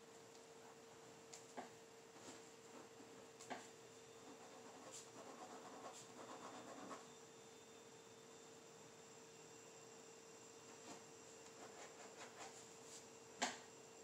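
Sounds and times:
faint steady hum: 0.0s - 14.0s
pen scratching on paper: 4.2s - 7.1s, 10.9s - 12.7s.

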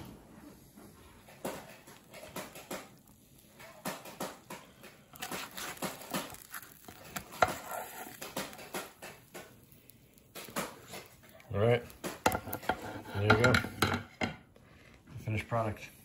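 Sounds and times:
spatula scraping baking tray: 7.2s - 8.8s, 12.2s - 13.8s.

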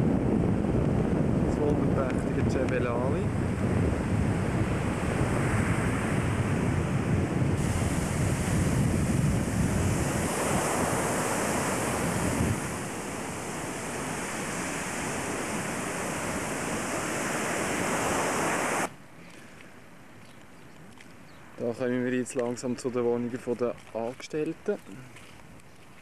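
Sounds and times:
surf breaking on beach: 0.0s - 18.9s
wind buffeting microphone: 0.0s - 18.9s.

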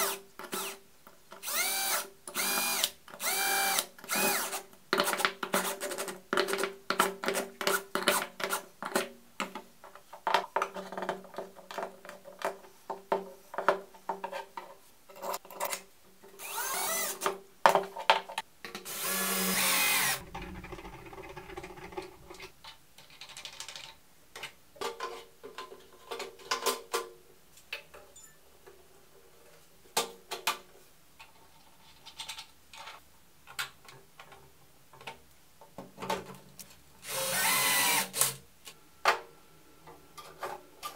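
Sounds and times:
cordless drill driving screws: 1.4s - 4.6s, 16.4s - 17.3s, 18.9s - 20.2s, 37.0s - 38.4s.

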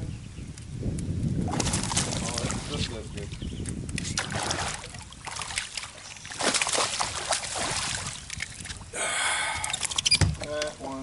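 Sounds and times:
fish splashing at water surface: 4.1s - 8.8s.

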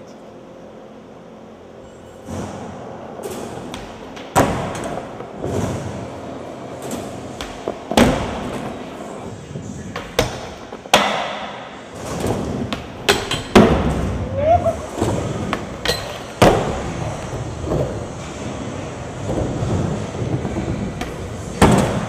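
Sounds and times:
skateboard impacts: 7.3s - 8.8s, 9.9s - 14.2s, 14.9s - 22.0s
skateboard wheels rolling on concrete: 13.6s - 22.0s.

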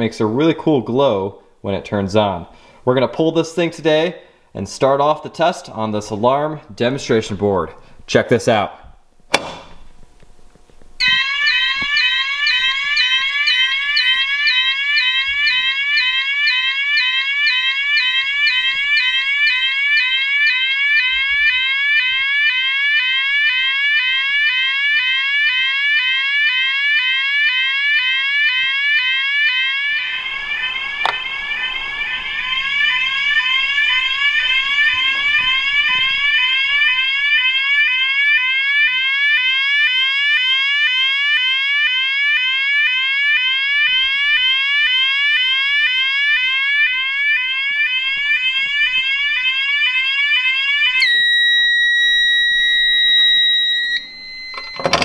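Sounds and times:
steady continuous alarm tone: 11.0s - 55.0s
alarm rising sweep tone: 29.9s - 37.4s.

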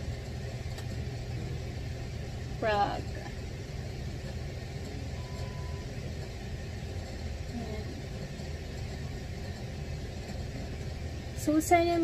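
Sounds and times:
low background rumble: 0.0s - 12.0s
faint brief tone: 5.1s - 5.9s.

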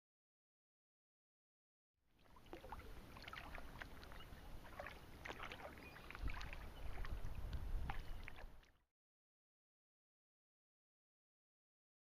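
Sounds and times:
water lapping at hull: 2.1s - 8.8s
water splashing from paddle strokes: 2.2s - 8.7s.

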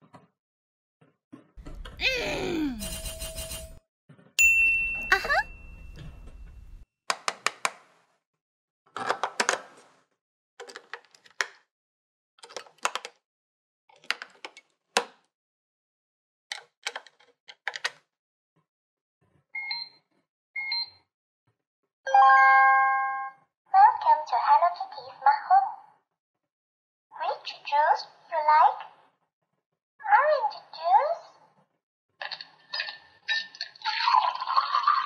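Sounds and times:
short electronic beeps: 2.8s - 3.8s
plastic clicks and rattles: 10.6s - 11.6s, 12.4s - 13.2s, 13.9s - 15.2s, 16.5s - 18.0s.

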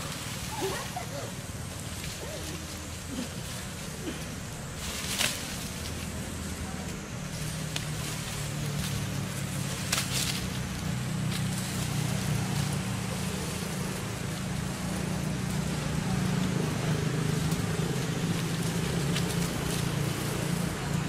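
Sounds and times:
low motor hum: 0.0s - 21.0s
brief crackle: 9.8s - 10.5s.

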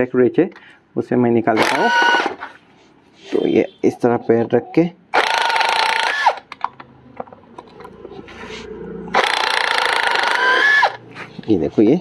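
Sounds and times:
impact wrench hammering rattle: 9.2s - 11.0s.

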